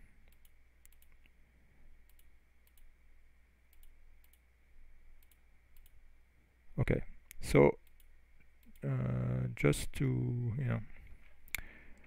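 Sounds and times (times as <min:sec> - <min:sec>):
low steady hum: 0:00.0 - 0:12.0
computer mouse clicks: 0:00.2 - 0:01.4, 0:02.0 - 0:02.9, 0:03.7 - 0:04.5, 0:05.2 - 0:06.0, 0:07.3 - 0:08.9.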